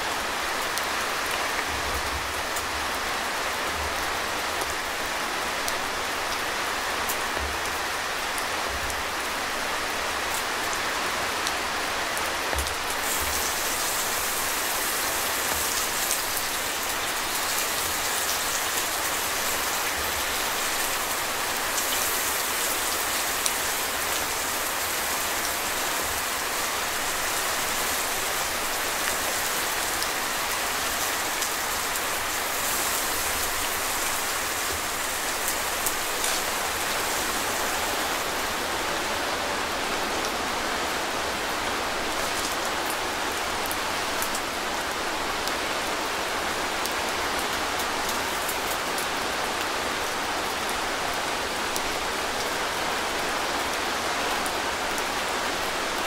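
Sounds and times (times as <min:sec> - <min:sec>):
rain pattering on tent fabric: 0:00.0 - 0:56.0
bright hiss: 0:13.0 - 0:19.7.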